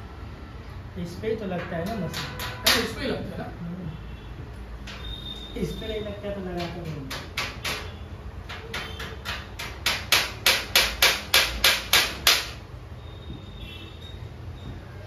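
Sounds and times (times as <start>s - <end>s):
hammer tapping metal plate: 1.6s - 3.0s, 6.5s - 12.6s.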